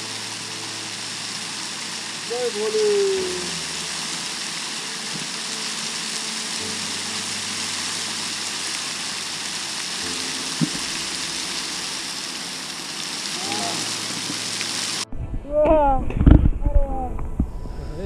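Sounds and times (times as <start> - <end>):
stream water splashing from rock: 0.0 - 15.1
sharp tap: 10.6 - 10.9.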